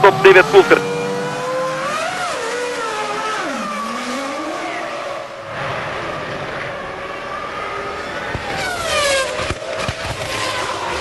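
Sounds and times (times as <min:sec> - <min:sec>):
race car engines: 0:00.0 - 0:11.0.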